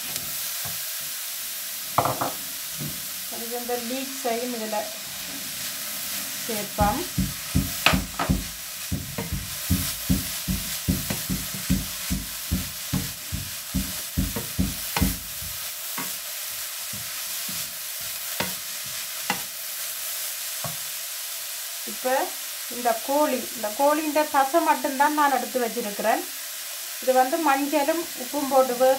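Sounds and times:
vegetables sizzling in oil: 0.0 - 28.9
spatula knocking against pan: 6.8 - 16.1.

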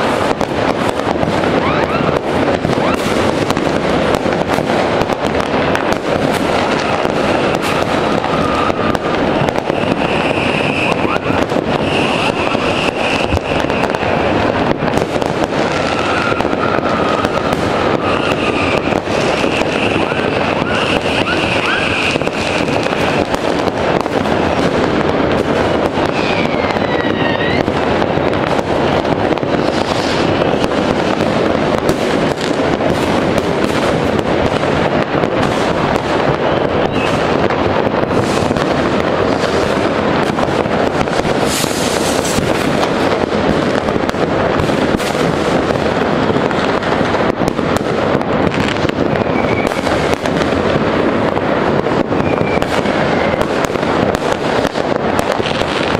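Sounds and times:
falling firework whistles: 0.0 - 3.8, 5.8 - 24.8, 25.5 - 28.7, 29.3 - 31.2, 35.4 - 42.9, 48.4 - 50.4, 52.0 - 55.9
firecrackers crackling and banging: 0.0 - 55.9
rising firework whistles: 0.0 - 55.9.

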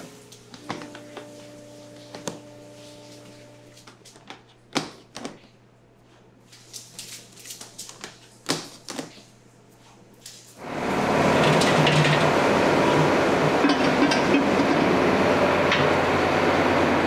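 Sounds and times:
higher machine tone: 0.0 - 3.8
low machine hum: 0.0 - 4.7, 9.3 - 17.0.

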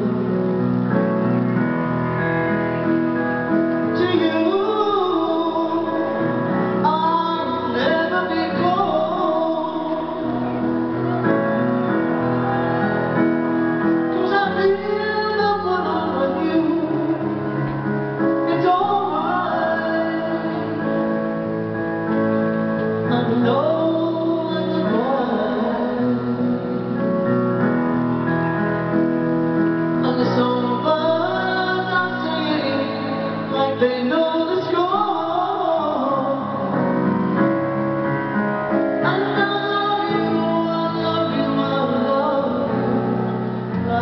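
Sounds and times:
piano accompaniment: 0.0 - 44.0
woman singing: 3.8 - 11.9, 13.8 - 21.5, 23.0 - 27.1, 30.0 - 37.0, 39.0 - 44.0.

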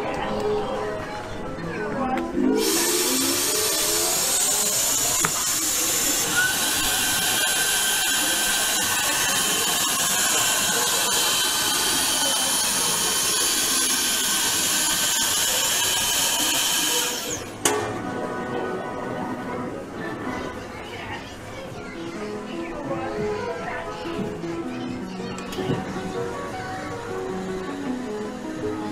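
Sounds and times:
vacuum pump whirring hiss: 2.6 - 17.7, 25.6 - 28.9.

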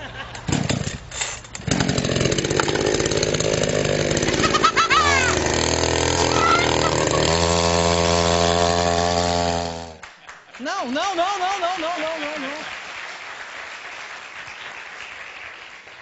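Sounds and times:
chainsaw at high revs: 1.6 - 10.0.

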